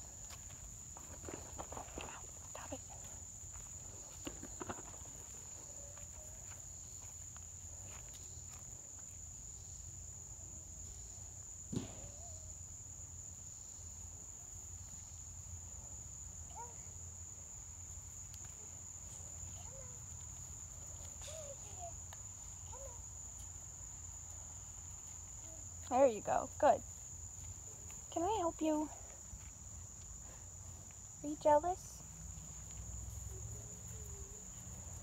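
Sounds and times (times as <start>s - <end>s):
crickets chirping: 0.0s - 35.0s
sharp knock: 11.7s - 12.2s.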